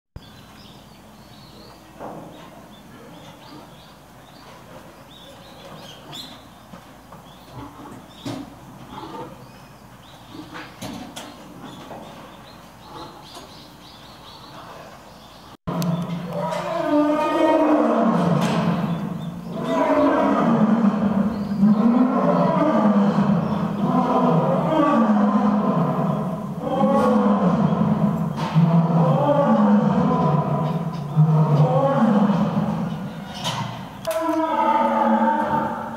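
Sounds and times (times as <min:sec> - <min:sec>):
small birds chirping: 0:00.2 - 0:16.4, 0:18.8 - 0:20.4, 0:21.1 - 0:22.6, 0:23.4 - 0:24.2
lions roaring: 0:15.7 - 0:35.9.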